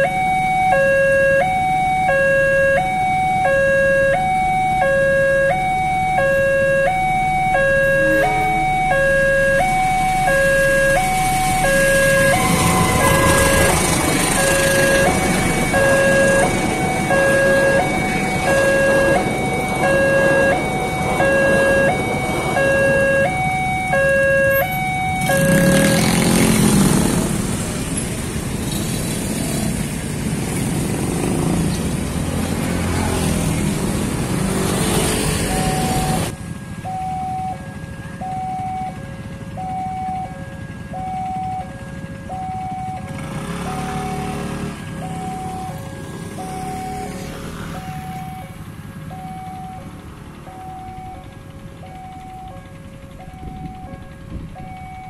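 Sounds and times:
two-tone warning siren: 0.0 - 27.9, 30.6 - 55.0
motorcycle engines revving: 0.0 - 36.6, 38.7 - 55.0
train rumbling past: 7.8 - 36.6.

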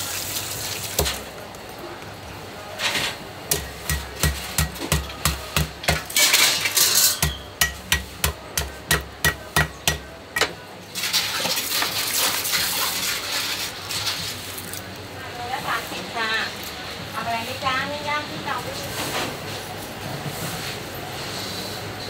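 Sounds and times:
cleaver chopping on wooden block: 3.5 - 6.1, 7.2 - 10.5.

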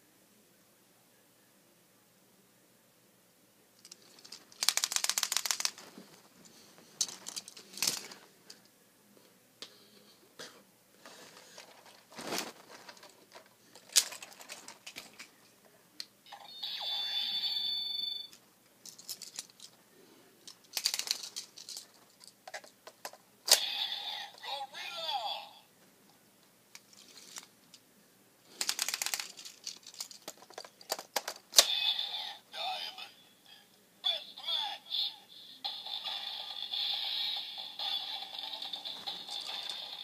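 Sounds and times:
toy clicks and rattles: 3.8 - 5.8, 7.0 - 8.2, 12.9 - 15.3, 18.3 - 19.8, 20.4 - 23.7, 26.8 - 27.5, 28.6 - 31.8, 35.7 - 40.0
plastic packaging crinkling: 3.9 - 6.3, 11.4 - 15.2, 20.7 - 22.2, 28.5 - 31.0.

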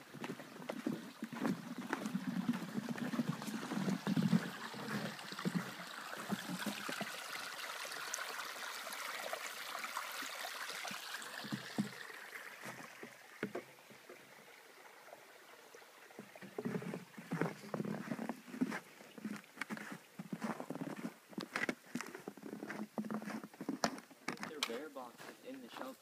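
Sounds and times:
stream trickling: 0.0 - 26.0
footsteps in snow: 16.8 - 26.0.

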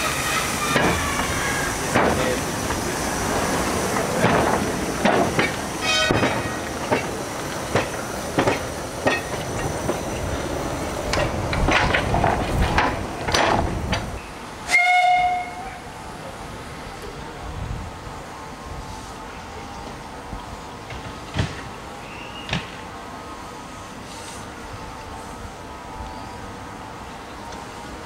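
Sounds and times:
high squeal: 0.0 - 1.9
steam hiss: 0.0 - 17.3, 18.0 - 27.0
steam locomotive running: 0.0 - 28.0
wheels clicking over rail joints: 0.7 - 15.4.

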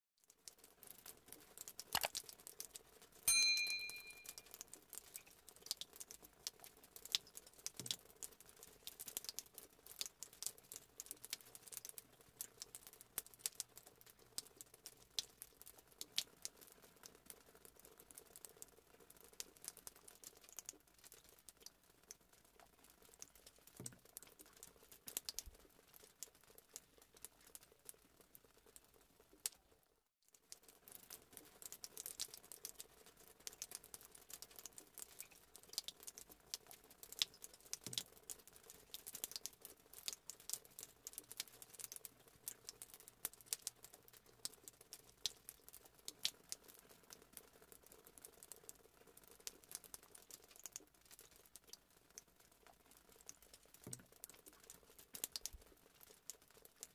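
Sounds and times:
faint clicks and crackles: 0.2 - 56.9
notification bell ding: 3.3 - 4.4.

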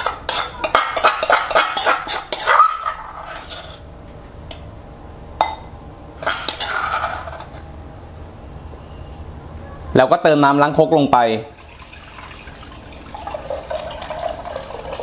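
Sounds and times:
metal spoon scraping stone mortar: 0.0 - 3.9, 6.2 - 7.6.

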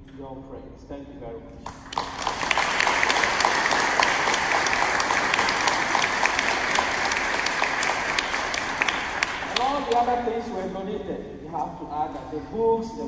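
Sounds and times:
crowd applauding: 1.7 - 10.2.

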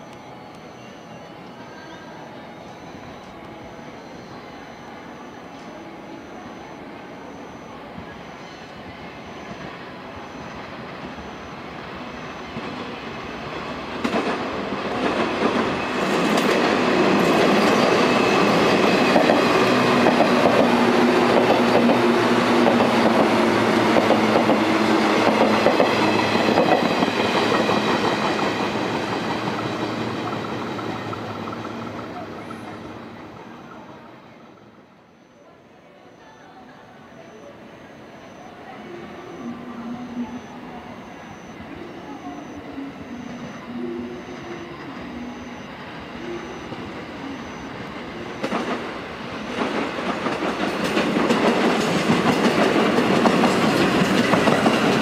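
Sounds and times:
train motor whine: 0.0 - 35.5, 37.1 - 55.0
train wheels clattering over rail joints: 48.4 - 55.0.

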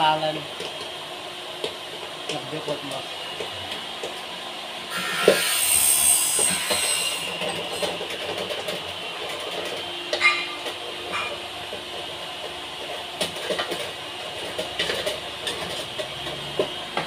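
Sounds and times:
sharp metal clanks: 10.2 - 11.4.

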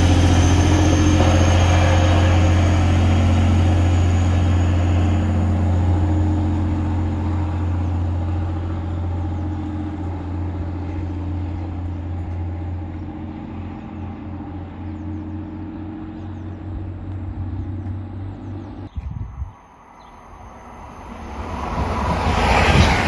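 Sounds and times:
diesel train engine droning: 0.0 - 23.0.

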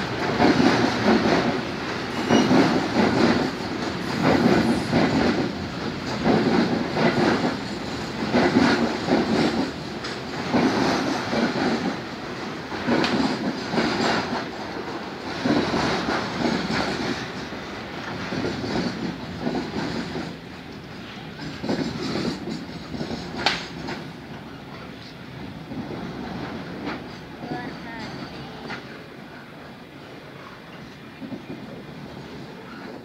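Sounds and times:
train wheels clattering over joints: 0.0 - 24.8
train rumble: 0.0 - 33.0.

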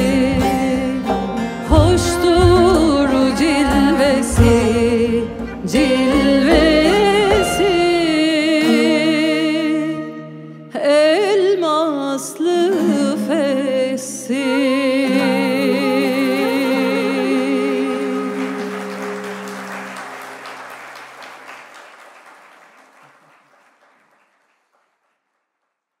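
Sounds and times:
sustained string instrument notes: 0.0 - 10.9, 12.7 - 20.7
woman singing with vibrato: 0.0 - 19.8
audience applause: 17.7 - 25.6.

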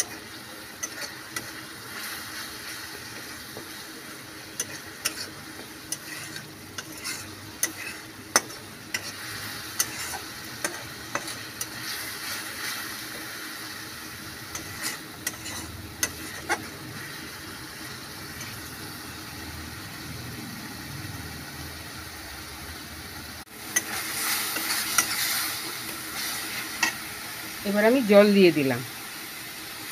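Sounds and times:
spatula scraping pan: 0.0 - 13.4, 14.4 - 18.7, 23.7 - 27.0
masala sizzling in pan: 0.0 - 29.9.

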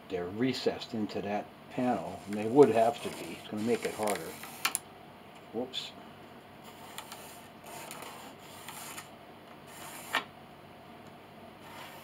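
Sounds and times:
pencil scratching on wood: 2.1 - 4.6, 9.7 - 10.2, 11.6 - 12.0.

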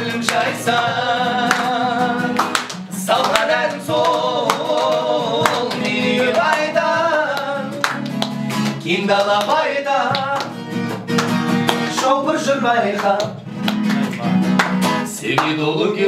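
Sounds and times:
men singing: 0.0 - 10.6, 11.8 - 13.5, 15.1 - 16.0
strummed acoustic guitar: 0.0 - 16.0.

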